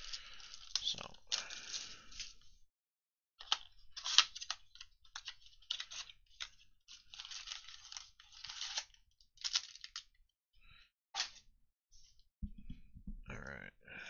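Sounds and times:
plastic wrap crinkling and tearing: 0.0s - 2.4s, 3.4s - 10.1s.

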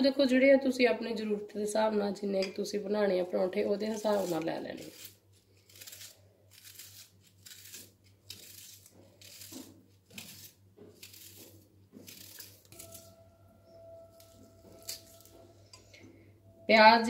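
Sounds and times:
knife slicing on cutting board: 4.1s - 13.1s, 14.2s - 15.4s.

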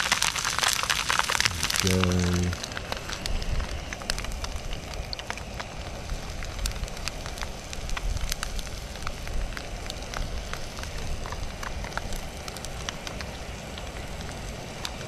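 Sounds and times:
fritter sizzling in oil: 0.0s - 15.0s
oil popping and crackling: 0.0s - 15.0s
low steady rumble: 1.3s - 11.8s.

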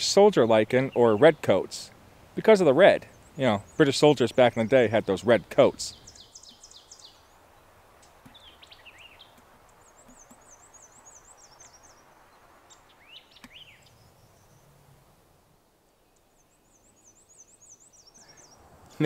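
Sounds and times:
songbirds calling: 0.0s - 19.0s
steady outdoor hiss: 0.0s - 19.0s.

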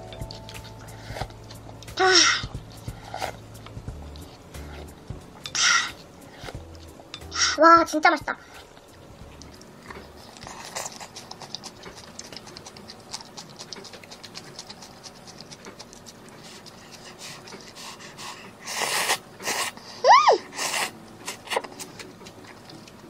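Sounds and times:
wet chewing and lip-smacking: 0.0s - 7.4s, 8.5s - 19.9s, 20.5s - 23.0s
noodle slurping: 8.5s - 22.7s.

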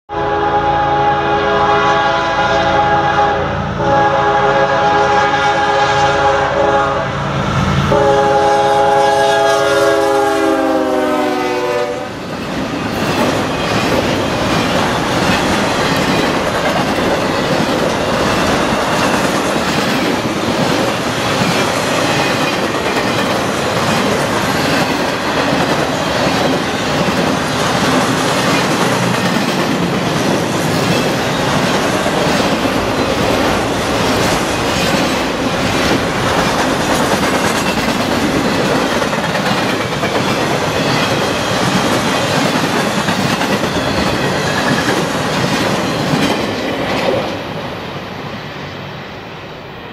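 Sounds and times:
locomotive air horn blast: 0.1s - 12.2s
freight train rolling past: 0.1s - 49.9s.

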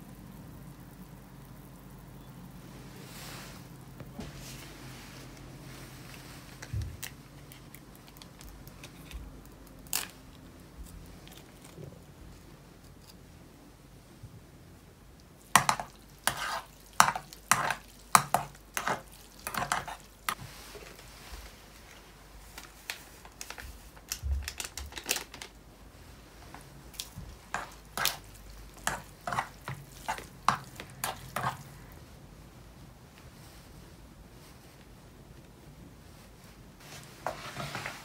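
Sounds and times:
utensil scraping a cooking pot: 15.5s - 20.4s, 27.3s - 32.0s.

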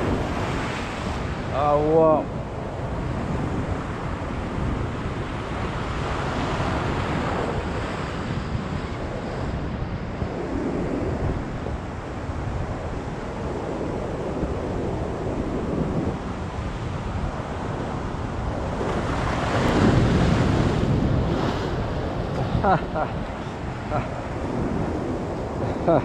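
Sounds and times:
wind buffeting microphone: 0.0s - 26.0s
surf breaking over rocks: 18.6s - 26.0s.

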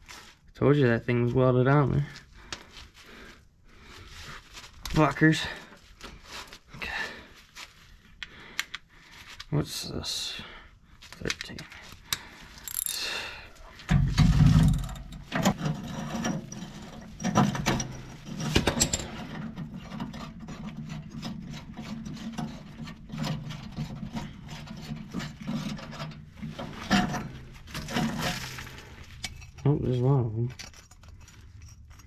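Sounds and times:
hand ratchet clicking: 12.6s - 13.0s.

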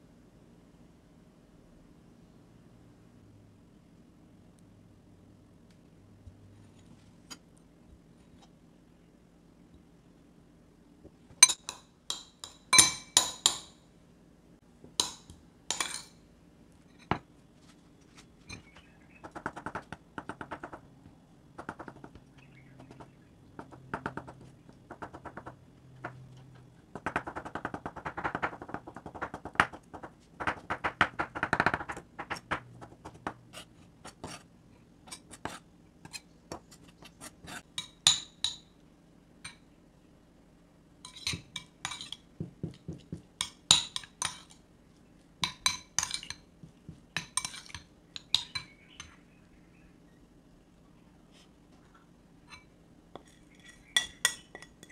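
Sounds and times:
spoon mashing egg in bowl: 27.0s - 38.6s, 41.0s - 44.6s, 45.4s - 49.2s, 52.5s - 54.9s
eggshell clinking on glass bowl: 53.2s - 54.9s.

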